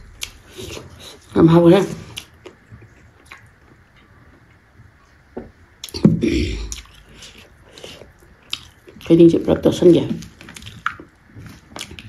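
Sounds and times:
person sipping and swallowing water: 5.8s - 8.7s
wet mouth sound: 5.8s - 8.8s.

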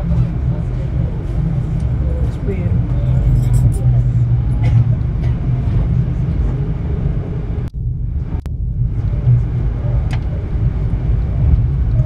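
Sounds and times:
train low rumble: 0.0s - 12.0s.

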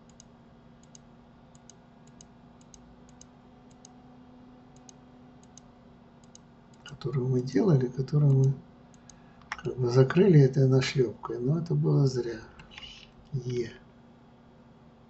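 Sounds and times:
computer mouse clicks: 0.0s - 4.0s, 4.8s - 6.9s, 8.3s - 9.6s
low steady hum: 0.0s - 15.0s.

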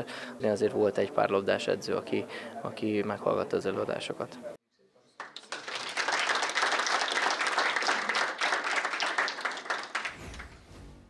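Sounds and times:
audience applauding: 5.2s - 10.6s.

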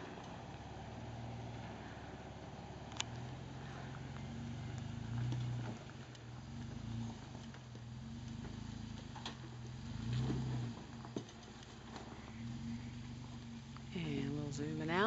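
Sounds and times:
engine running low and slow: 0.0s - 15.0s
faint clicks: 2.9s - 3.3s.

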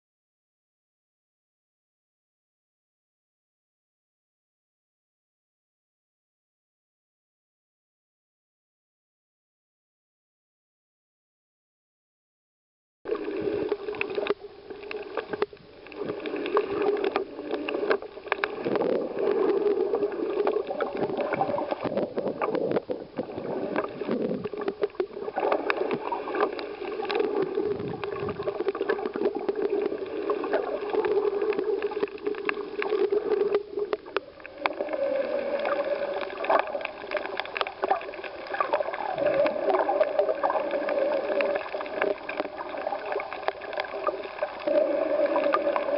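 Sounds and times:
underwater clicks: 13.1s - 45.9s
underwater gurgling and sloshing: 13.1s - 45.9s.

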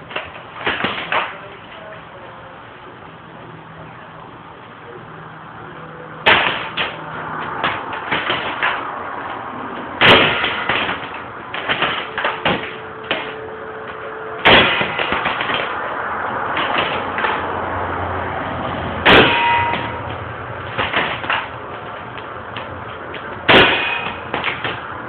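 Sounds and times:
airsoft gun shots: 6.3s - 7.0s, 10.0s - 13.4s, 14.4s - 15.7s, 19.0s - 20.0s, 23.5s - 24.8s.

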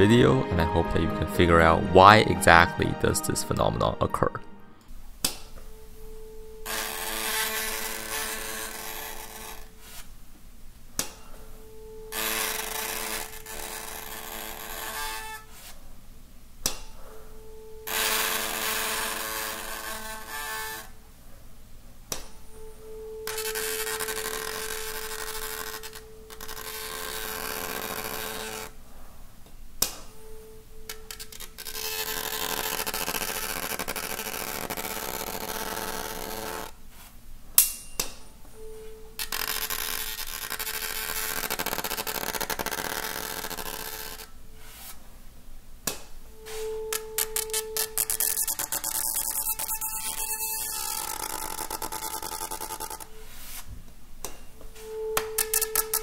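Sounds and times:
tuning fork ringing tone: 5.6s - 8.0s, 11.2s - 13.9s, 22.3s - 28.5s, 37.8s - 40.0s, 46.3s - 53.2s, 54.6s - 56.0s
paper buzzing against fork: 6.6s - 10.1s, 12.1s - 15.7s, 17.9s - 20.9s, 23.3s - 28.7s, 30.9s - 36.7s, 39.2s - 44.9s, 46.5s - 53.6s, 55.4s - 56.0s.

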